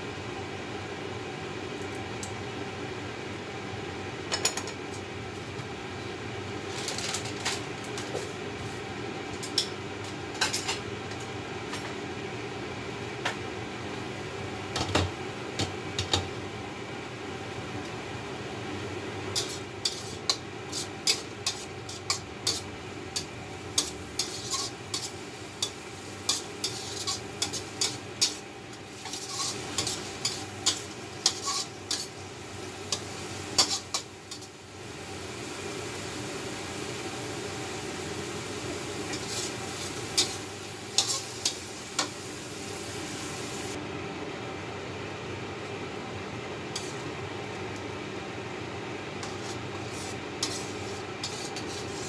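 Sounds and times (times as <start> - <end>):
mushrooms sizzling in a wok: 13.8 - 43.8, 48.2 - 52.0
metal spatula scraping wok: 19.4 - 32.2, 32.9 - 34.5, 39.1 - 42.1, 49.2 - 52.0.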